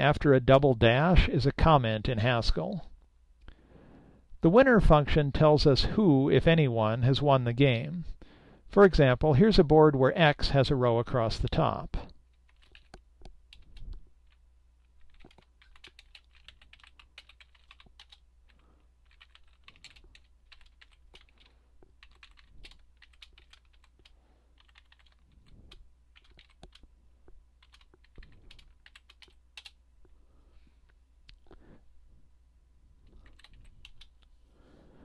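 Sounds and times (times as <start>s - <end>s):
steady low hum: 10.0s - 35.0s
faint typing on keyboard: 11.4s - 30.2s, 33.0s - 34.4s.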